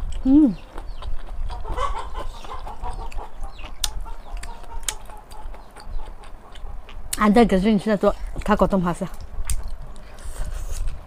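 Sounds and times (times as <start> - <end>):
chickens clucking: 0.5 - 7.1.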